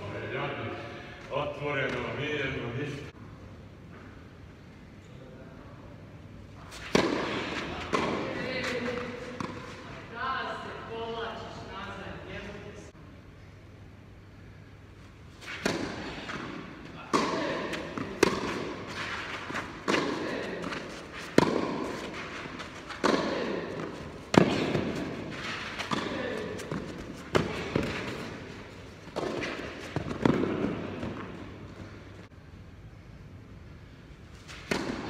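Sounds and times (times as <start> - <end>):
tennis ball bouncing: 6.7 - 9.8, 15.5 - 32.2, 34.5 - 35.0
tennis racket hitting ball: 6.7 - 9.8, 15.4 - 32.0, 34.5 - 35.0.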